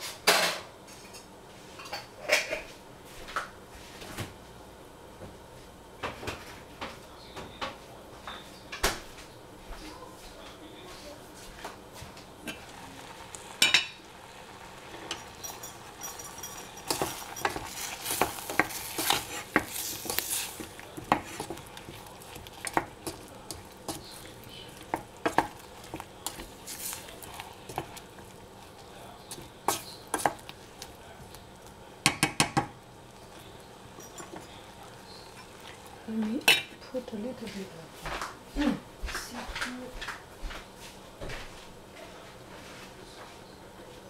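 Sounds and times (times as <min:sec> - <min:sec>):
wooden spoon scraping a pan: 0:12.0 - 0:31.7.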